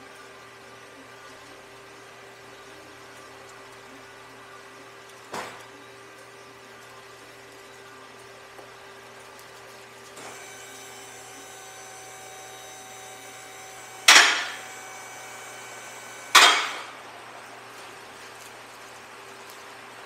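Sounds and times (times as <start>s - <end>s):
loud sharp knocks: 16.3s - 16.9s.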